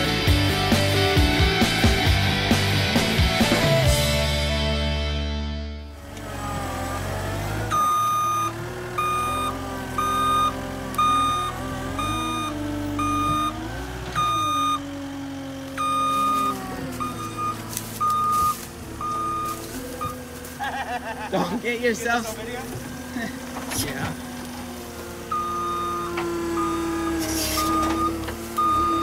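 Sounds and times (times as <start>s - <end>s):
diesel engine running: 0.0s - 29.0s
backup alarm beeping: 7.7s - 13.6s, 14.2s - 14.9s, 15.8s - 20.2s, 25.3s - 29.0s.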